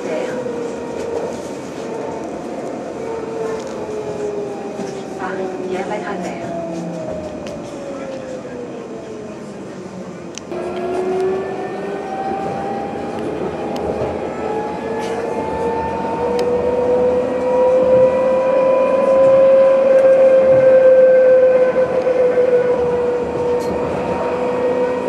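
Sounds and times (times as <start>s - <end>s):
tram motors whining: 0.0s - 25.0s.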